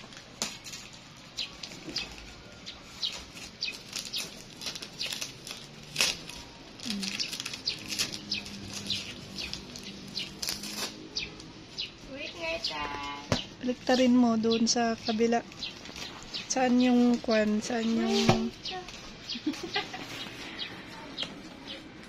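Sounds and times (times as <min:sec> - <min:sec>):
packing tape peeling and tearing: 0:00.0 - 0:11.5.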